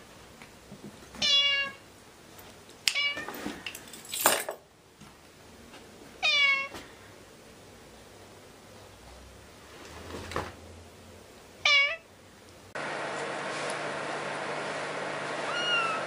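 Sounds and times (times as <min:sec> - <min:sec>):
cat meowing: 0:01.2 - 0:01.8, 0:02.9 - 0:03.3, 0:06.2 - 0:06.8, 0:11.6 - 0:12.1, 0:15.4 - 0:16.0.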